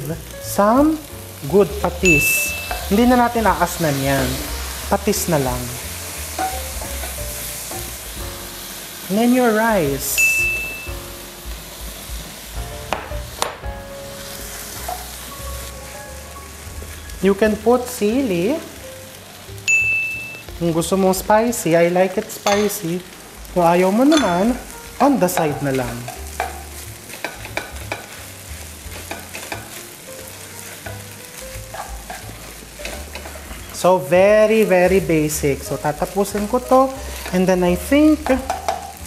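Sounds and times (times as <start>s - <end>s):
food sizzling in a frying pan: 0.0s - 39.0s
spatula stirring in pan: 1.4s - 9.1s, 24.0s - 34.7s, 38.2s - 39.0s.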